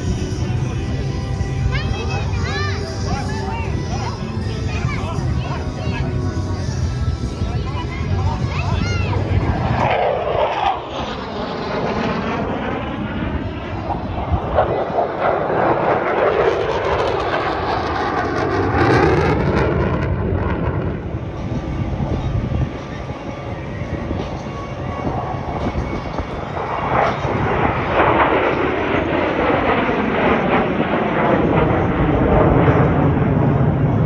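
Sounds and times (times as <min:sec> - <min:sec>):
jet engines roaring: 0:00.0 - 0:34.0.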